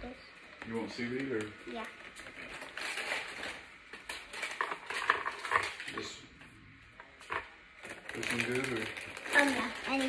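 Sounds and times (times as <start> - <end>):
seaweed packet crinkling: 1.2 - 6.0, 7.8 - 10.0.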